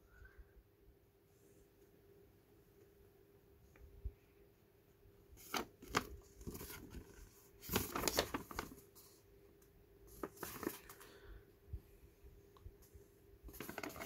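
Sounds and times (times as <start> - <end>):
paper rustling and crackling: 5.4 - 9.2, 10.1 - 11.2, 13.5 - 14.0.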